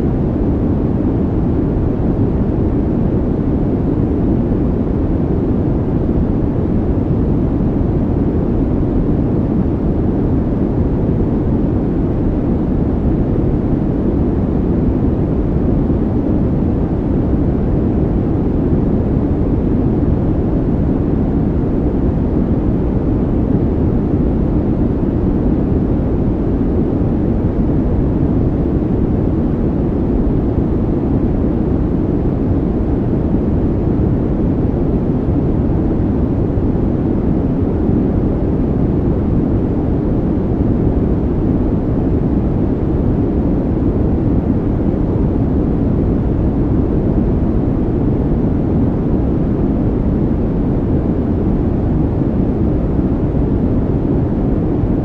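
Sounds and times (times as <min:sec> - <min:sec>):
low rumbling noise: 0:00.0 - 0:55.0.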